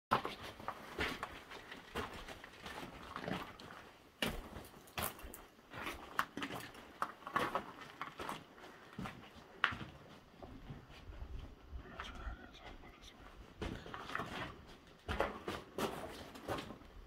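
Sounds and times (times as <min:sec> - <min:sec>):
footsteps crunching on gravel: 0:00.2 - 0:11.0.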